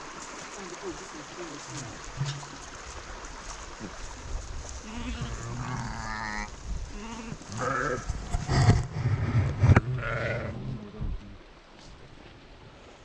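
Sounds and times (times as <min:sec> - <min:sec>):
sheep bleating: 0:04.8 - 0:08.1.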